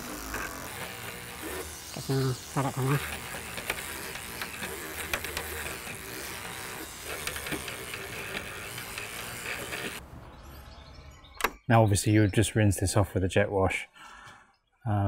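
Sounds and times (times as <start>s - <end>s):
electric toothbrush scrubbing: 0.0s - 10.0s.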